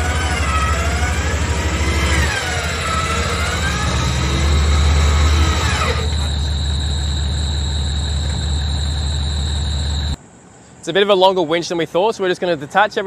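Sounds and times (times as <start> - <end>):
electric winch whining: 0.0 - 10.2
steady high tone: 0.0 - 10.2
vehicle engine running: 0.0 - 10.2.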